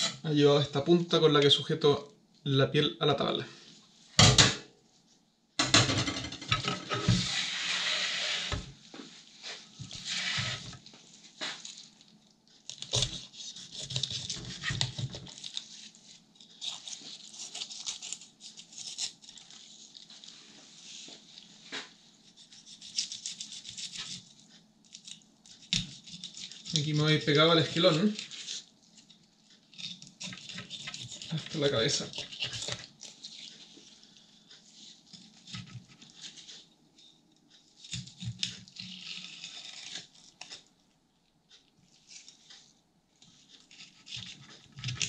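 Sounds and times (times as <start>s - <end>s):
knife scraping fish scales: 7.0s - 8.6s, 9.8s - 10.8s, 12.7s - 15.8s, 16.5s - 19.5s, 22.3s - 24.2s, 24.9s - 28.7s, 29.7s - 33.5s.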